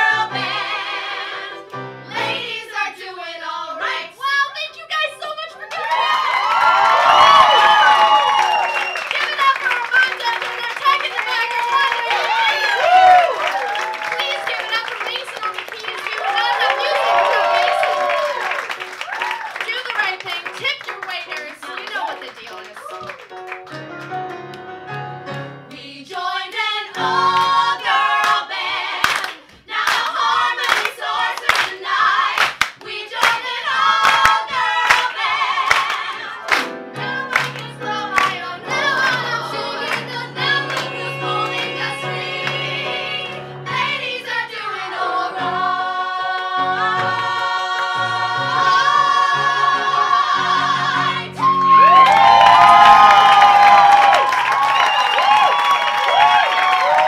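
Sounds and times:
women singing in harmony: 0:00.0 - 0:04.3, 0:25.7 - 0:52.0.

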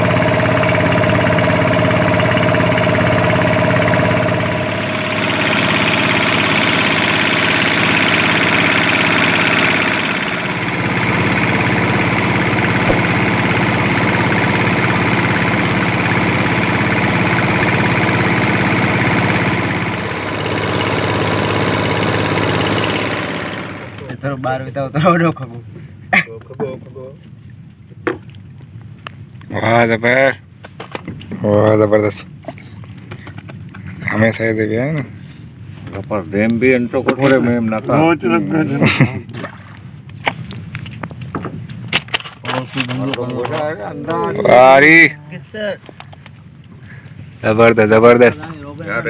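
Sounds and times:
boat engine running: 0:00.0 - 0:24.3.

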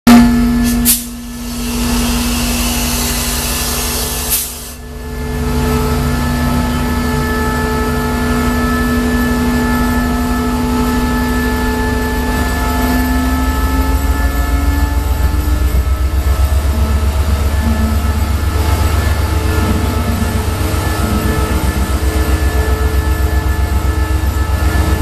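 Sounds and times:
locomotive engine drone: 0:00.1 - 0:25.0
loud hiss: 0:00.6 - 0:04.8.

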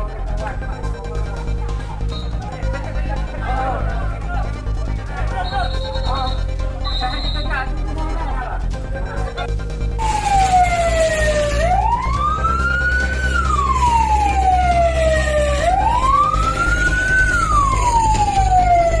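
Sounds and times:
siren wailing: 0:09.8 - 0:19.0.

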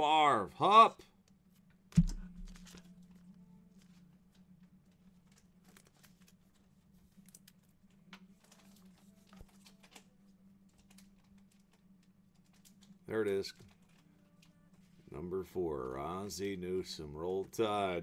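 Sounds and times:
steady low hum: 0:00.0 - 0:18.0
trading card clicks and rustles: 0:02.0 - 0:14.9.

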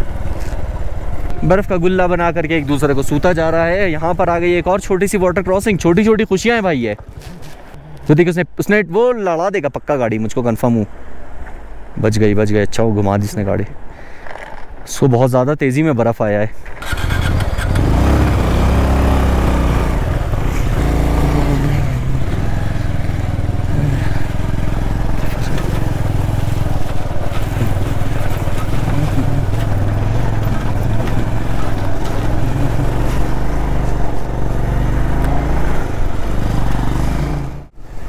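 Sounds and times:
motorcycle engine running: 0:16.8 - 0:37.8.

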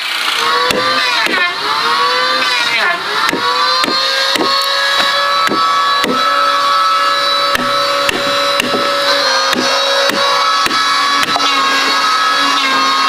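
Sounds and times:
wood splintering: 0:00.0 - 0:13.0
chisel knocking into wood: 0:03.3 - 0:06.2, 0:07.5 - 0:11.5.

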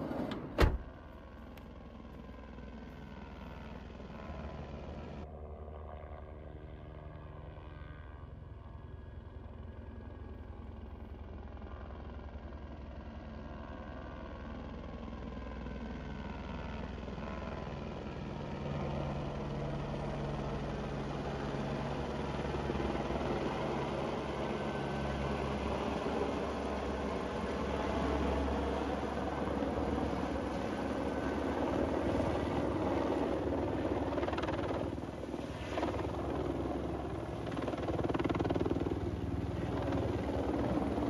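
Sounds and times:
helicopter rotor beating: 0:15.8 - 0:41.0.

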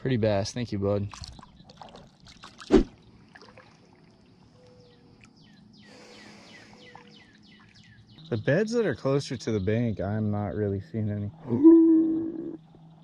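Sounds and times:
water lapping around kayak: 0:01.0 - 0:05.6, 0:06.3 - 0:08.2
faint bird chirps: 0:04.4 - 0:10.7, 0:11.3 - 0:13.0.

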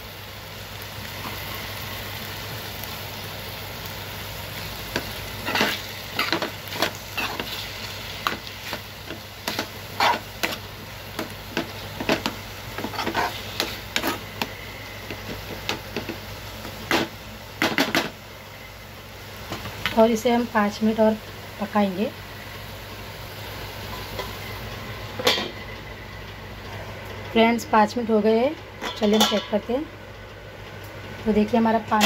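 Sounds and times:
mince sizzling: 0:00.0 - 0:32.0
spoon scraping metal frying pan: 0:09.4 - 0:14.3.

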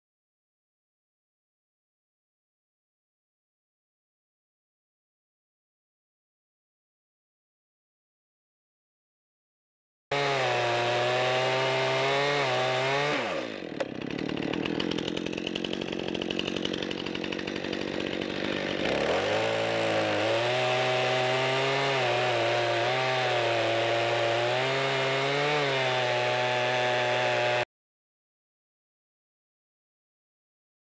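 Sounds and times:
chainsaw running: 0:10.1 - 0:27.7
chainsaw sawing through wood: 0:10.1 - 0:27.7.

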